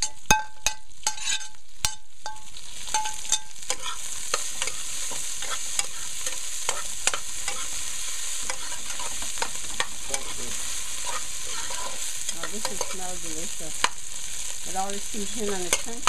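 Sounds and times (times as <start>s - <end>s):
metal spoon scraping a pot: 0.0s - 7.8s, 8.4s - 13.0s
food sizzling in hot oil: 0.0s - 16.0s.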